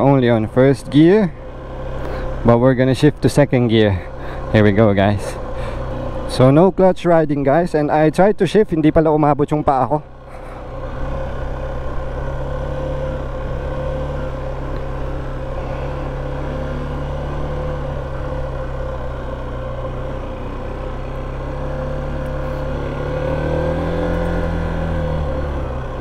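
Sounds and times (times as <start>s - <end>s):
motorcycle engine running: 0.0s - 6.8s, 9.7s - 26.0s.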